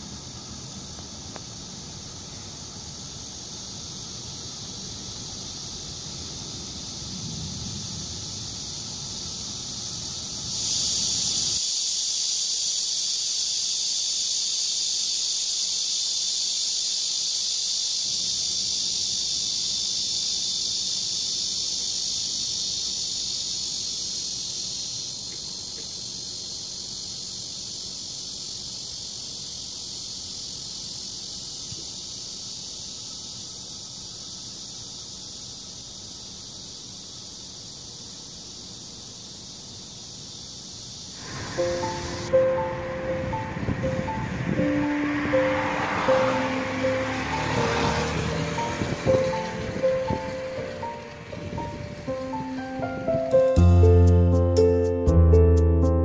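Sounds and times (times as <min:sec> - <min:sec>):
cicadas buzzing: 0:00.0 - 0:55.1
low rumble: 0:41.2 - 0:47.4.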